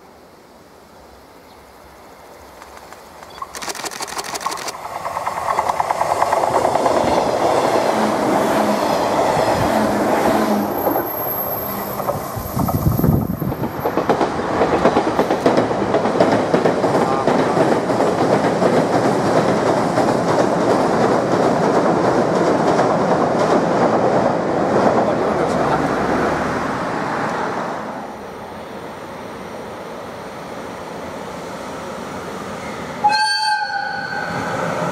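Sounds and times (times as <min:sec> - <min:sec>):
electric train passing: 0:00.0 - 0:34.9
train wheels clattering on rails: 0:02.6 - 0:25.9.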